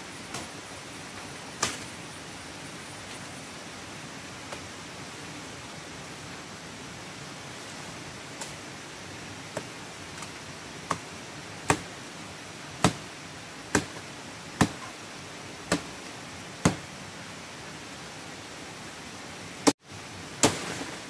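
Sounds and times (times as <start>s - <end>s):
steady hiss: 0.0s - 21.0s
machete chopping woody stems: 11.6s - 11.9s, 12.8s - 13.1s, 13.7s - 14.0s, 14.6s - 15.0s, 15.7s - 15.9s, 16.6s - 16.9s, 20.4s - 21.0s.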